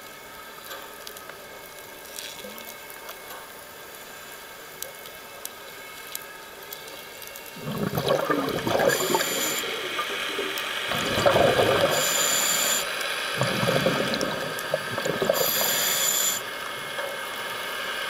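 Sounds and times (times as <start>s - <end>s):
exhaled bubbles rushing: 7.6s - 12.3s, 13.4s - 15.9s
regulator inhalation hiss: 8.7s - 10.9s, 11.6s - 16.6s.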